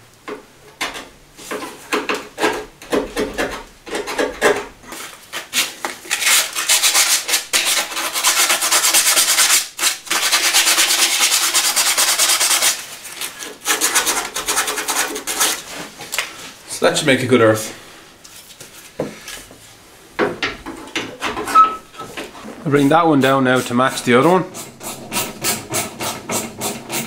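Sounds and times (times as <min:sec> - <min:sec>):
sanding metal by hand: 0:06.1 - 0:12.9, 0:13.6 - 0:15.7, 0:22.8 - 0:27.0.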